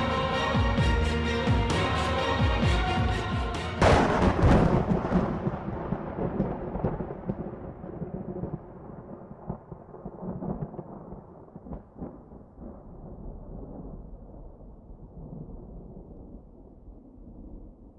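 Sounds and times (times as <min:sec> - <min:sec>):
rolling thunder: 0:03.8 - 0:17.9.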